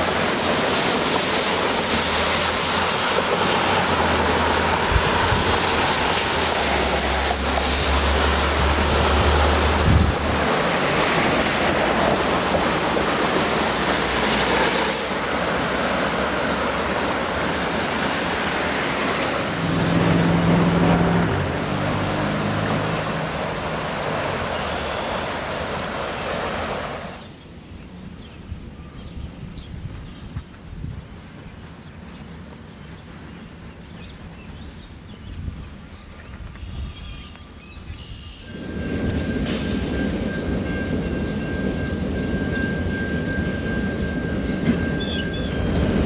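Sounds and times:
floodwater rushing over weir: 0.0 - 27.4, 38.4 - 46.0.

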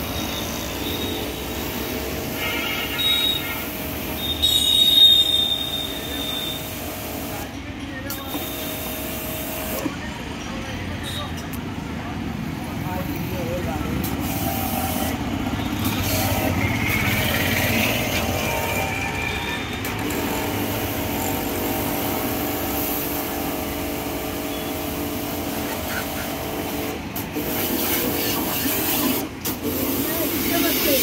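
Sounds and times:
pressure washer pump humming: 0.0 - 7.5, 8.1 - 10.0, 13.9 - 31.0
water jet hissing: 0.0 - 7.5, 20.2 - 31.0.

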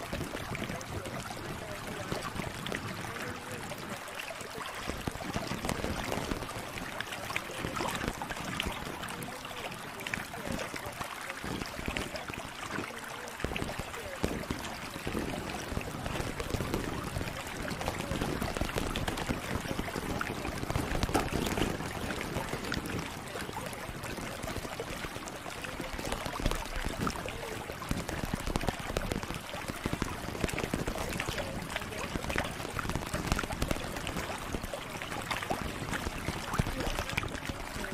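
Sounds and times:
crackly small clicks: 12.3 - 37.9.

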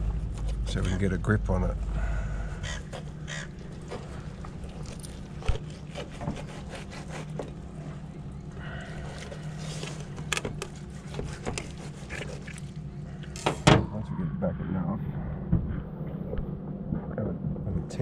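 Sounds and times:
steady low hum: 0.0 - 18.0
knife scraping fish fillet: 5.4 - 7.5, 9.6 - 12.7.

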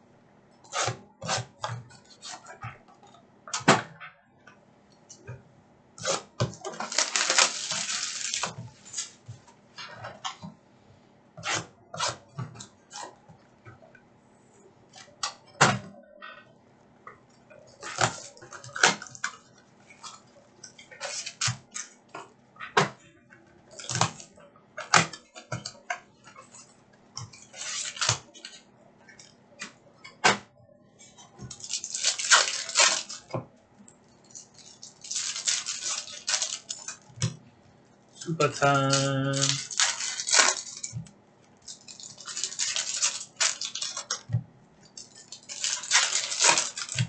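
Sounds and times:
foil packs crinkling and tearing: 6.0 - 9.2, 21.0 - 21.9, 27.4 - 28.6, 31.5 - 33.3, 34.3 - 37.1, 38.2 - 41.0, 41.6 - 44.2, 44.9 - 47.0.

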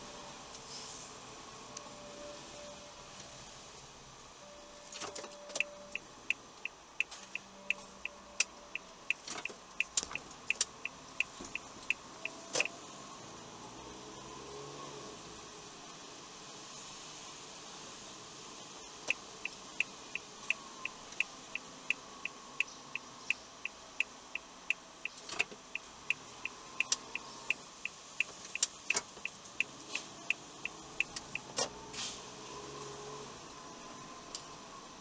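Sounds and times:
road and engine noise: 0.0 - 35.0
turn signal clicking: 4.9 - 12.7, 19.0 - 31.8.

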